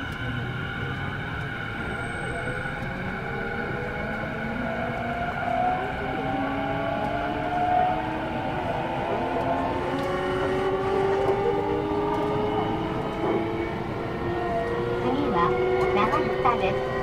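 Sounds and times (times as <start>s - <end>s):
rail and wheel noise: 0.0s - 17.0s
electric train motor whine: 9.0s - 17.0s.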